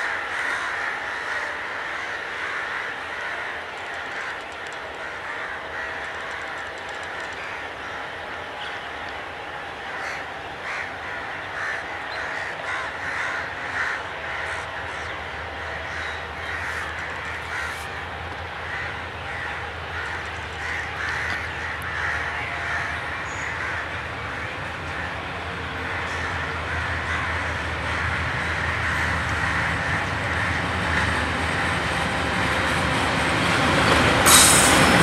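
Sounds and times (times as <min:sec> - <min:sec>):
crows cawing: 0:00.0 - 0:08.1, 0:09.9 - 0:31.6
locomotive diesel engine rumble: 0:11.0 - 0:35.0.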